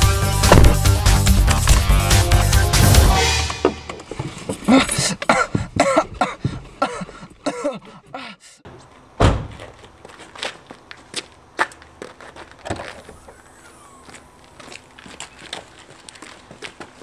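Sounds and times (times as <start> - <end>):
heavy thump: 0.4 - 1.0, 2.7 - 4.3
footsteps: 2.7 - 7.2, 8.8 - 17.0.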